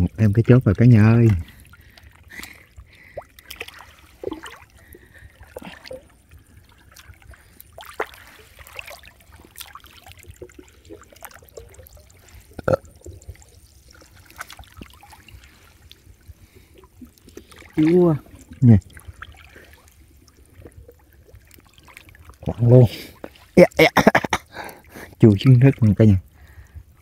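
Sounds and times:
water dripping: 0.0s - 27.0s
water trickling and splashing: 0.0s - 27.0s.

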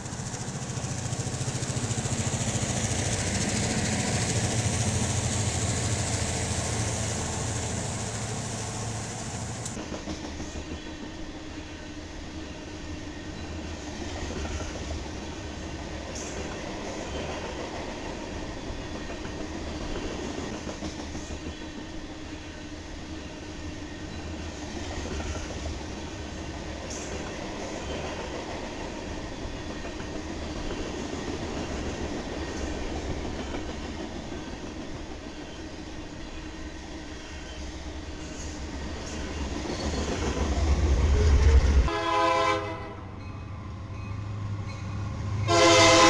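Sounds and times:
rail joint clicking: 0.0s - 11.2s, 13.2s - 21.9s
train wheels rumbling on rail: 0.0s - 46.0s.

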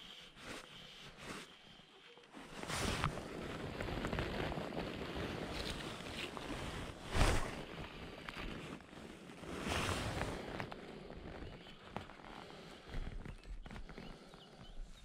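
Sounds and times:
jacket rustling: 5.5s - 7.7s
fishing rod whoosh: 7.0s - 7.6s.

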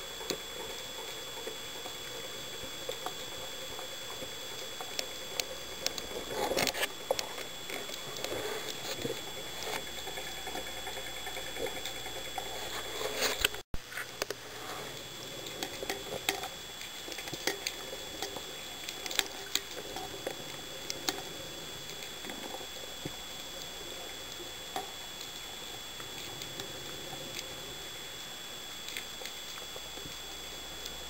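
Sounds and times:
faint high whine: 0.0s - 31.0s
small clicks and crackles: 0.0s - 31.0s.

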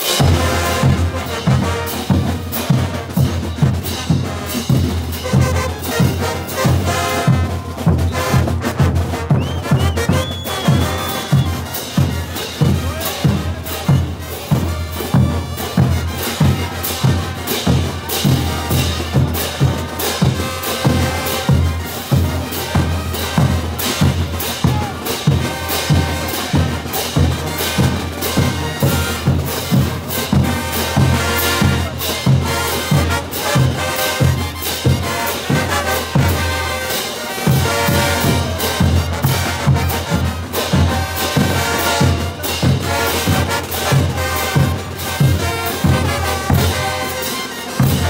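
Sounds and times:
bass drums: 0.0s - 36.8s
brass band playing: 0.0s - 48.0s
snare drums: 0.0s - 48.0s.

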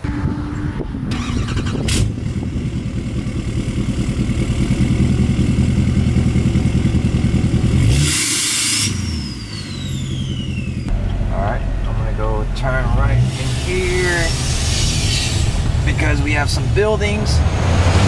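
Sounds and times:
diesel truck engine revving: 0.0s - 18.0s
rush of air: 13.3s - 15.9s.

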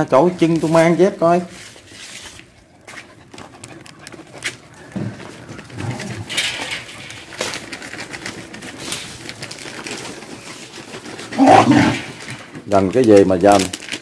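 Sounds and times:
dogs growling: 3.6s - 7.2s, 11.2s - 12.4s.

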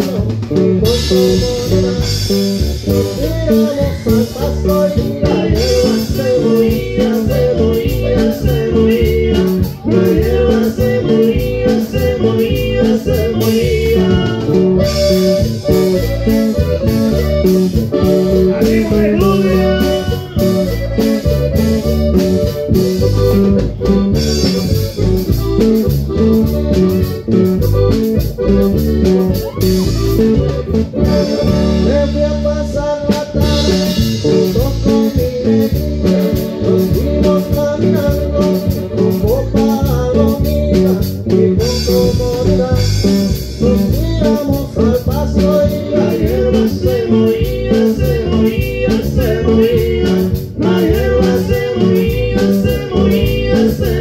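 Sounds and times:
button accordion: 0.0s - 54.0s
drum kit: 0.0s - 54.0s
electric bass: 0.0s - 54.0s
guitar: 0.0s - 54.0s
live band playing: 0.0s - 54.0s.

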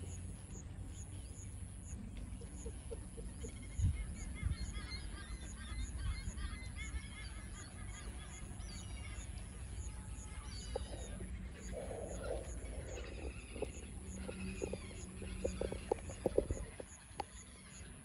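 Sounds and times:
birds chirping and honking: 0.0s - 18.0s
low rumble: 10.1s - 17.2s
low bumps: 10.6s - 17.3s.

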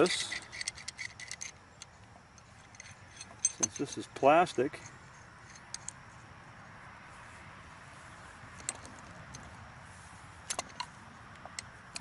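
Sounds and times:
hand tool clicking and clinking: 0.0s - 6.0s, 8.6s - 9.5s, 10.4s - 12.0s.

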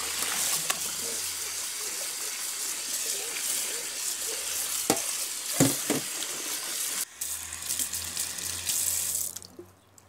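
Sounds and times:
tap water splashing into a pot: 0.0s - 0.9s, 4.8s - 6.4s
knocks in a sink: 5.6s - 6.1s.

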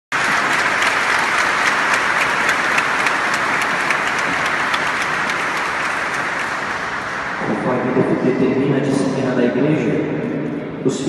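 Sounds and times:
crowd applauding: 0.1s - 8.1s.

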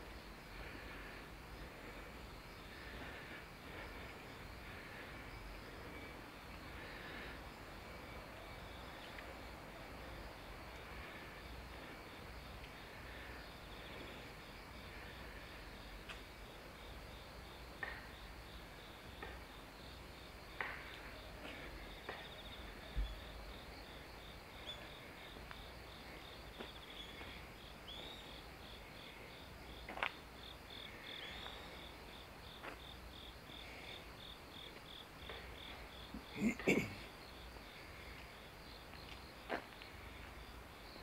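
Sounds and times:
insect chirping: 0.0s - 41.0s.

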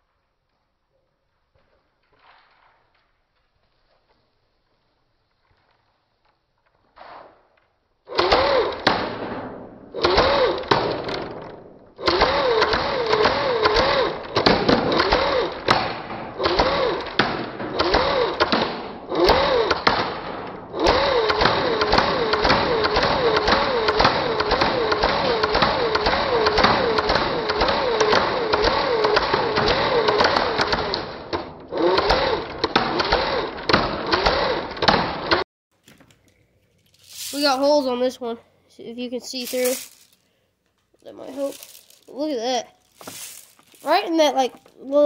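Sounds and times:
airsoft gun firing bursts: 8.1s - 11.4s, 12.0s - 35.4s.

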